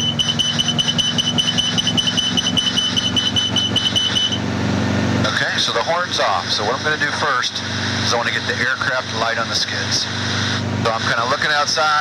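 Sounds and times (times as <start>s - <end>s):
warning horn beeping fast: 0.0s - 4.5s.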